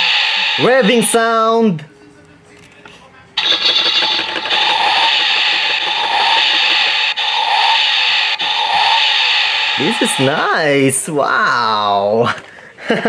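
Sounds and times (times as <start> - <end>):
toy car engine sound effect: 3.4 - 10.5.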